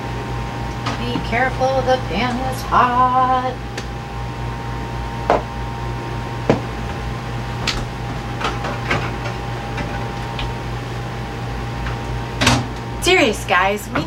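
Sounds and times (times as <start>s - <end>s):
steady hum: 0.0s - 14.0s
oven being handled: 6.4s - 12.9s.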